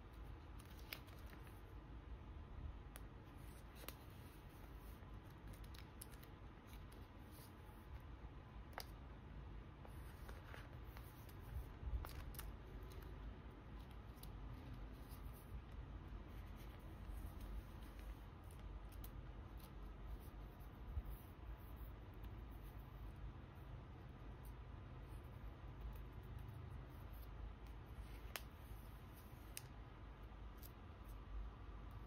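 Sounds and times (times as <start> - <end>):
small clicks and taps: 8.6 - 9.1.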